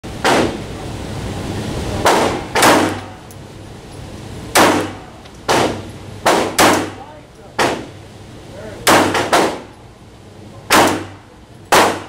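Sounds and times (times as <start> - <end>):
pistol shots echoing indoors: 2.0 - 3.1, 4.5 - 7.0, 10.7 - 12.0.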